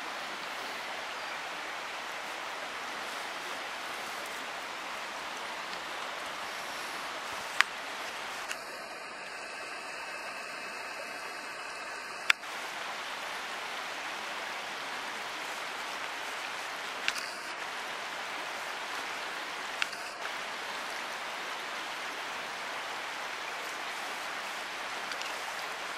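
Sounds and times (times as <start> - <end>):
hissing outdoor background noise: 0.0 - 25.9
sharp clicks: 11.6 - 12.5, 16.0 - 17.5, 19.8 - 20.4.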